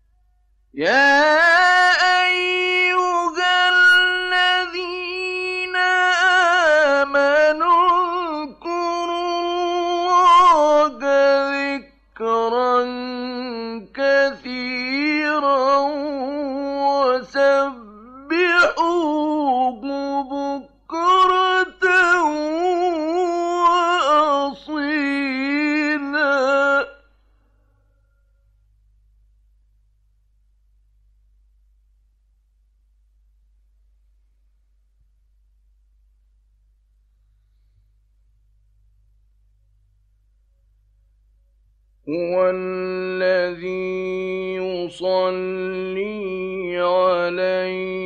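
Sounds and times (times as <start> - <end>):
man chanting melodically: 42.1 - 48.0.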